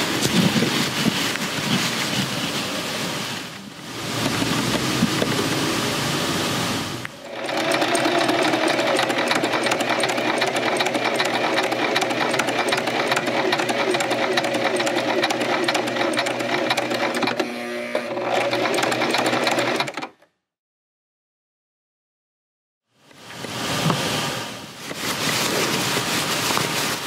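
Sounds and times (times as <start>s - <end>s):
electric sewing machine stitching: 7.2s - 20.3s.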